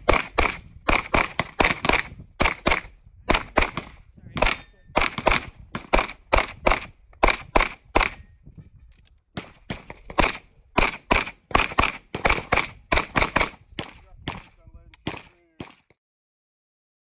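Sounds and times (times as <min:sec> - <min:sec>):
pistol rapid fire: 0:00.0 - 0:08.2, 0:09.4 - 0:15.9.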